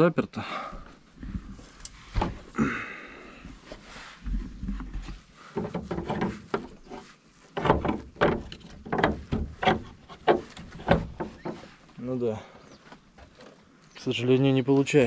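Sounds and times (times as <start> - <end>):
wooden door knocking and rattling: 7.6 - 11.6.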